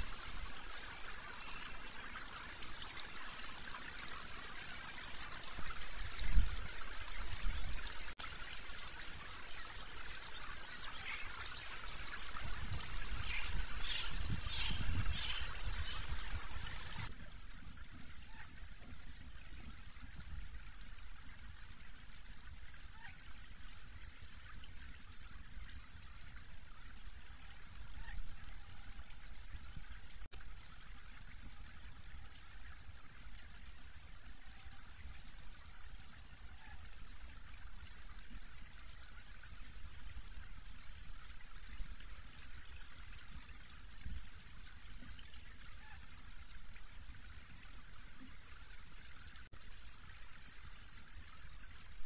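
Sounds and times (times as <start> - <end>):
songbird trills: 0.0 - 19.8.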